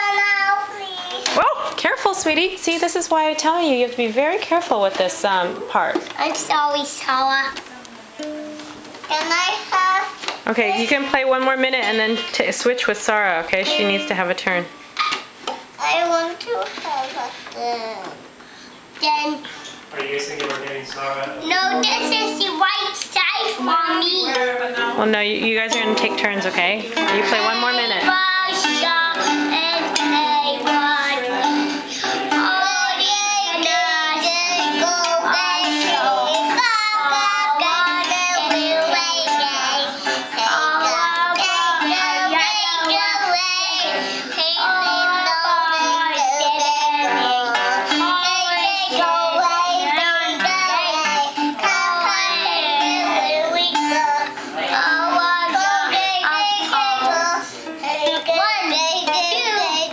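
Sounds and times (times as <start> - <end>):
toddler singing: 0.0 - 1.4, 6.2 - 10.9, 21.4 - 24.6, 27.0 - 59.9
ukulele strumming: 7.5 - 15.7, 20.0 - 59.9
toy electronic guitar music: 8.2 - 9.6, 20.0 - 59.9.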